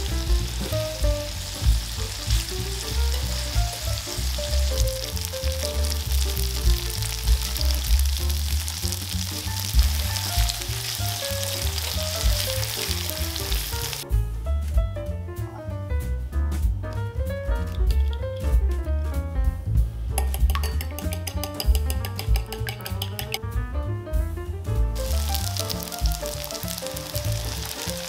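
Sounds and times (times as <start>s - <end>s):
tofu sizzling in oil: 0.0s - 14.0s, 25.0s - 28.0s
background music with bass: 0.0s - 28.0s.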